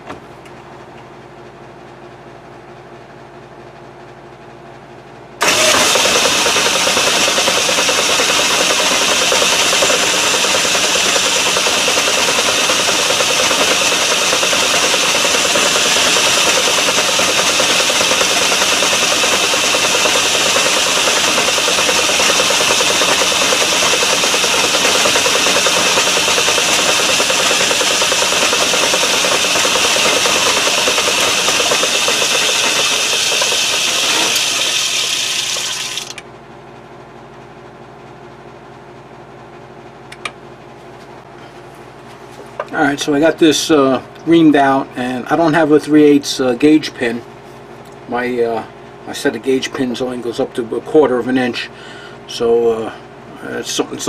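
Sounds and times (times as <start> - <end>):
metal lathe running: 5.4 - 36.2.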